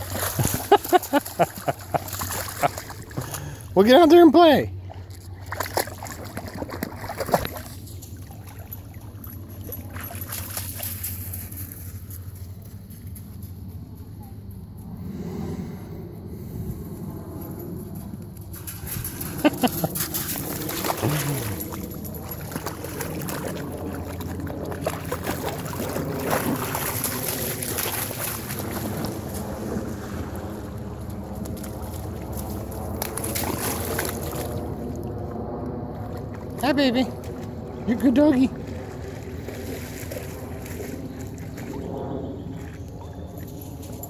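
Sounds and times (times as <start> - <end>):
water splashing: 0.0 - 3.6, 4.8 - 11.1, 18.7 - 30.6
low rumble: 11.2 - 44.0
footsteps on wet gravel: 18.5 - 29.7.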